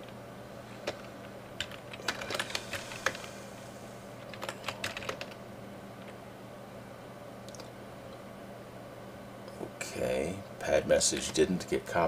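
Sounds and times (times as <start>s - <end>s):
typing on computer keyboard: 0.8s - 3.2s, 4.3s - 5.4s.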